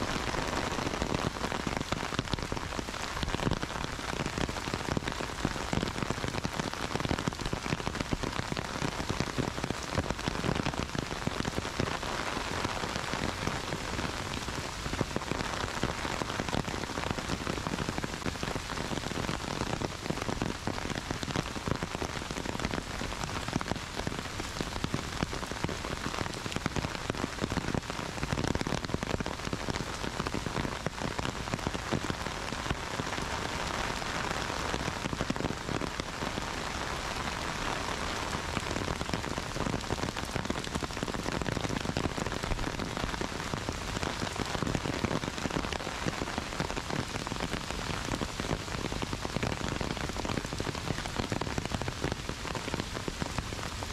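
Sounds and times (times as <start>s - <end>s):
heavy rain falling: 0.0s - 53.9s.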